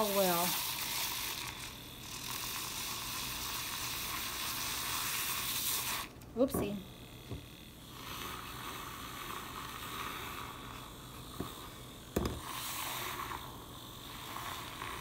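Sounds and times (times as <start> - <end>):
milk frother whirring: 0.0 - 15.0.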